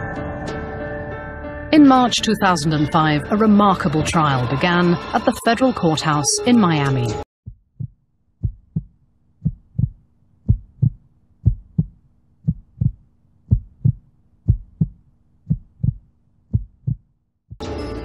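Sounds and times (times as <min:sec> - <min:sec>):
heartbeat thumps: 0:07.4 - 0:17.6.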